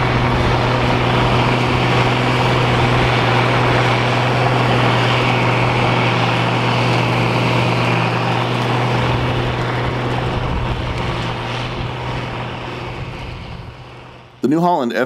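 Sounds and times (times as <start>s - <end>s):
chopper blowing straw: 0.0s - 14.6s
tractor diesel engine running: 0.0s - 14.7s.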